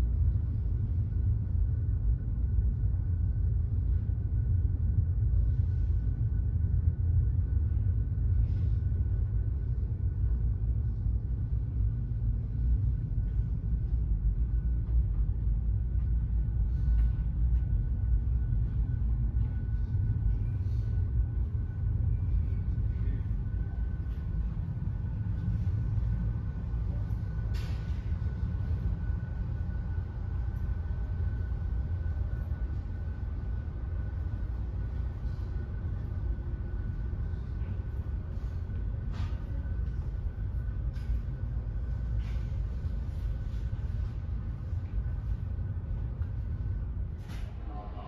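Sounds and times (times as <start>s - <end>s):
faint high whine: 0.0s - 48.0s
ferry low rumble: 0.0s - 48.0s.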